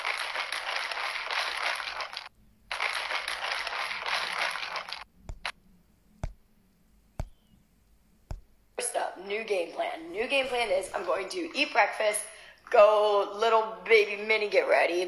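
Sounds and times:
plastic bottle of liquid shaken: 0.0 - 5.5.

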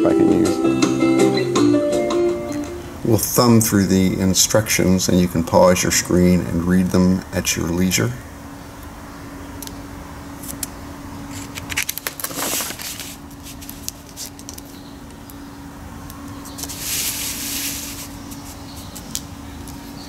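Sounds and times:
paper pages rustling: 11.3 - 14.8, 16.4 - 19.2.

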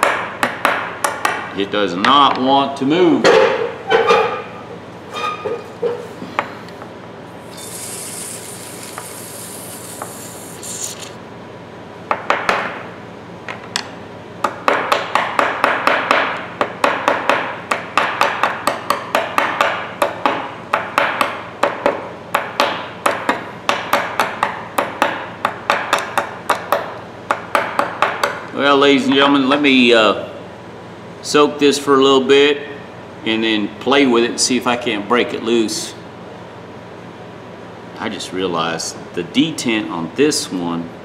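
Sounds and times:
aerosol spray hissing: 7.5 - 11.2.

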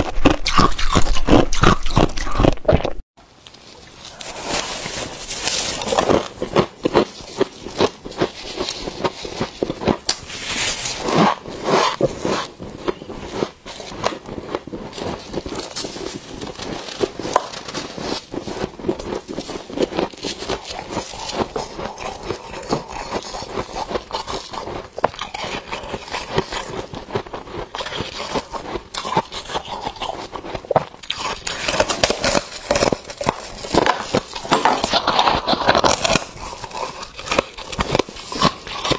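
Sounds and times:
frost crunching when chewed: 0.0 - 38.9.

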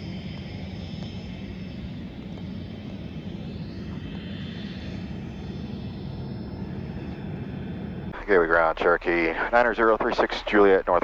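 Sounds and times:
propeller plane engine drone: 0.0 - 11.0.

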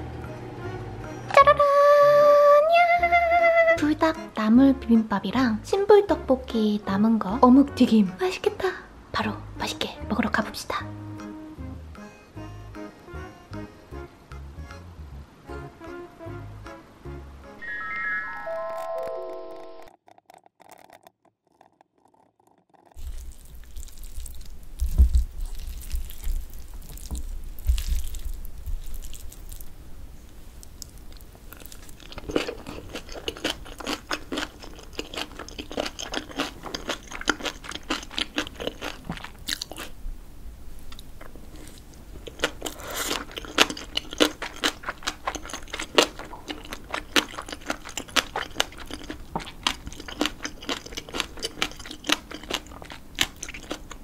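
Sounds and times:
close chewing with mouth clicks: 19.9 - 29.7, 30.6 - 40.0, 40.9 - 54.0.

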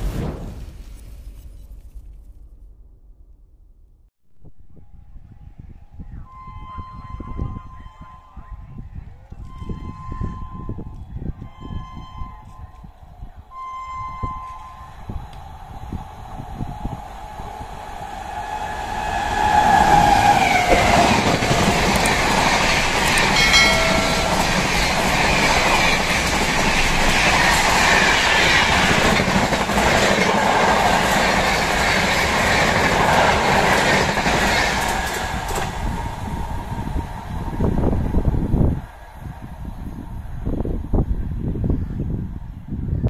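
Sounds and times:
train horn: 6.0 - 15.4, 17.5 - 26.1
train wheels clattering on rail: 18.3 - 37.9.

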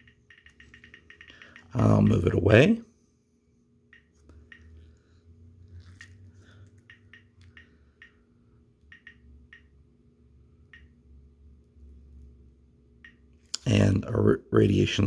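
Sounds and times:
geiger counter clicking: 0.0 - 2.1, 3.9 - 4.7, 6.8 - 8.2, 8.8 - 9.8, 10.7 - 11.0, 13.0 - 13.2.

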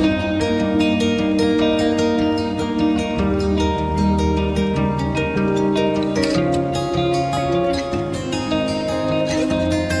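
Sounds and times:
plucked string music: 0.0 - 10.0.

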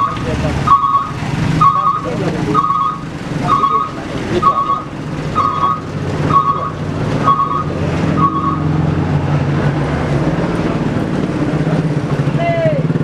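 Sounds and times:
reversing alarm beeping: 0.0 - 8.7
diesel engine running: 0.0 - 13.0.

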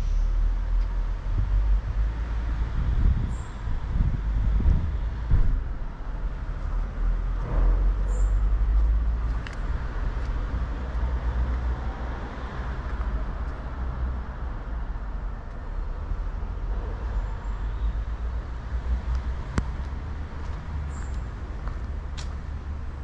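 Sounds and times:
low vehicle rumble: 0.0 - 23.0.

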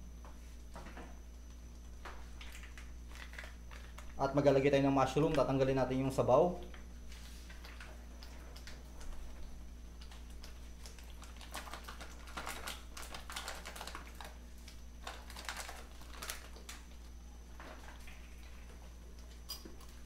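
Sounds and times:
plastic pouch crinkling: 2.4 - 4.2, 10.0 - 17.0.

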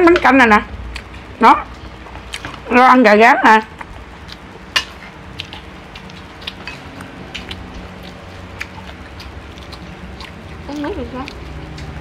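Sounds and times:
low steady hum: 0.0 - 12.0
person chewing: 0.9 - 1.2, 2.1 - 2.6, 3.7 - 12.0.

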